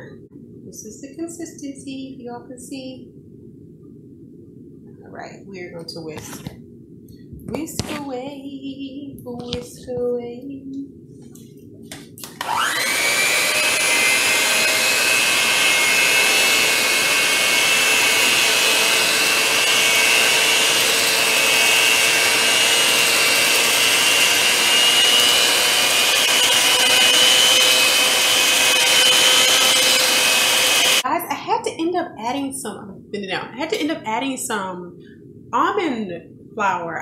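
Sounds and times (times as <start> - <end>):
electric hand mixer whining: 12.3 - 31.0.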